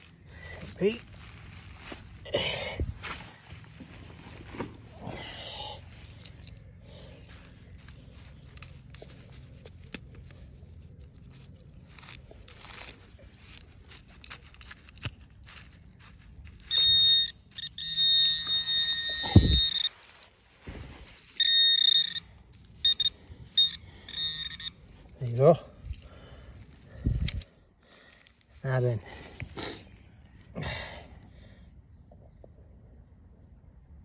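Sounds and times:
soil being dug: 0:00.0 - 0:30.0
pinpointer electronic tone and beeps: 0:16.7 - 0:19.9, 0:21.4 - 0:24.8.

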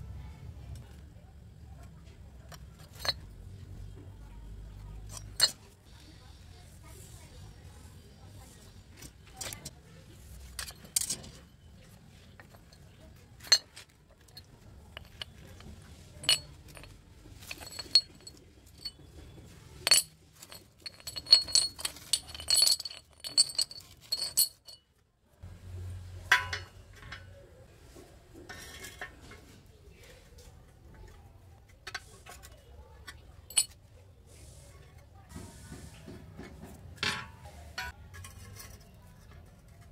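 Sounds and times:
metal tools clinking on concrete: 0:02.5 - 0:03.3, 0:05.0 - 0:05.7, 0:10.5 - 0:24.9, 0:26.3 - 0:27.4, 0:33.0 - 0:33.8, 0:37.0 - 0:39.9.

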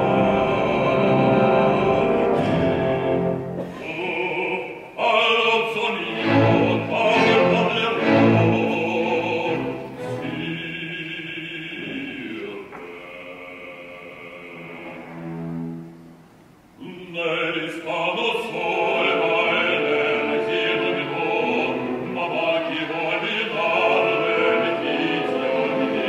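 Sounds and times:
orchestra playing: 0:00.0 - 0:03.8, 0:06.0 - 0:11.1, 0:14.5 - 0:16.7, 0:18.6 - 0:26.0.

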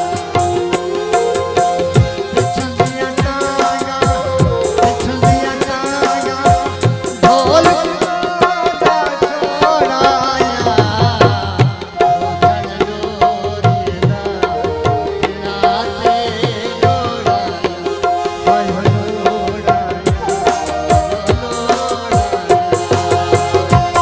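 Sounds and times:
melody of long held notes: 0:00.0 - 0:08.3
hand drum rhythm: 0:00.0 - 0:24.0.

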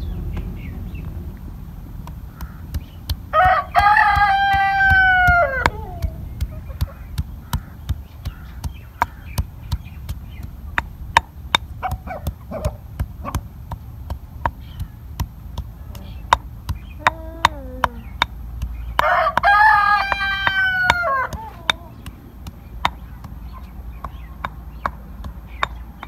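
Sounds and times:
pestle pounding in stone mortar: 0:01.9 - 0:26.0
rooster crowing: 0:03.3 - 0:06.8, 0:19.0 - 0:22.0.

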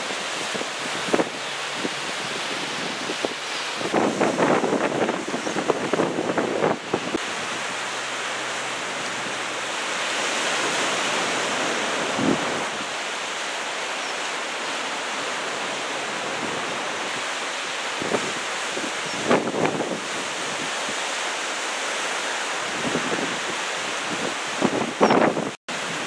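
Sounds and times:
wind buffeting microphone: 0:00.0 - 0:07.2, 0:18.0 - 0:20.7, 0:22.8 - 0:26.0
waves breaking on shore: 0:00.0 - 0:26.0.

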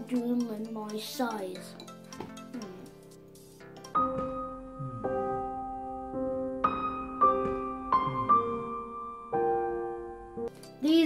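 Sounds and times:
slow piano chords: 0:02.1 - 0:10.8.

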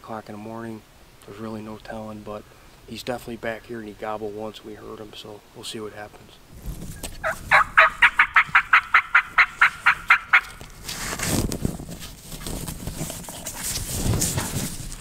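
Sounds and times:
turkey mouth call yelps: 0:07.2 - 0:10.6
footsteps crunching dry leaves: 0:09.4 - 0:15.0.

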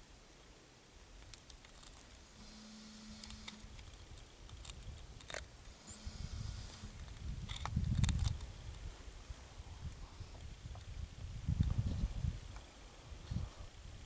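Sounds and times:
clicks and rustles of handling: 0:01.2 - 0:02.2
camcorder zoom motor whirring: 0:02.3 - 0:03.8, 0:05.3 - 0:07.7.

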